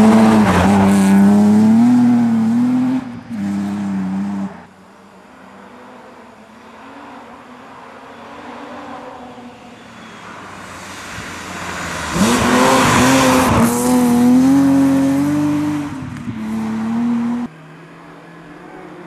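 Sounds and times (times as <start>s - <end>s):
rally car engine at full throttle: 0.0s - 19.0s.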